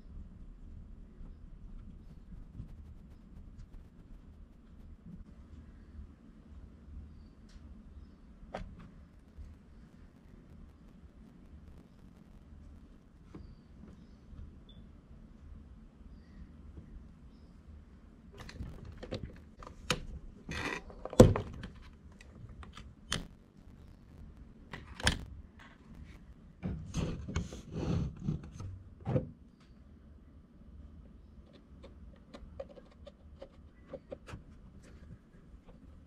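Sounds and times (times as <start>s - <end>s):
shock absorbers clicking and knocking: 18.4s - 26.3s, 31.5s - 36.0s.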